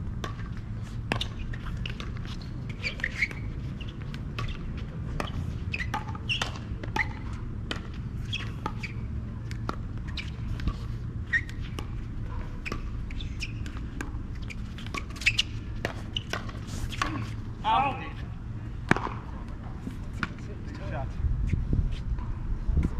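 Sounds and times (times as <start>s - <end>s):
sneakers squeaking on court: 0.2s - 18.1s.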